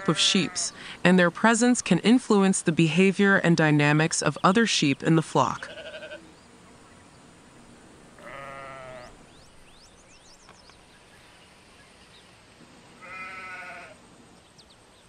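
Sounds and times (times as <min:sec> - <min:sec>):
ram bleating: 0:00.0 - 0:00.7, 0:05.5 - 0:06.3, 0:08.2 - 0:09.2, 0:13.0 - 0:14.0.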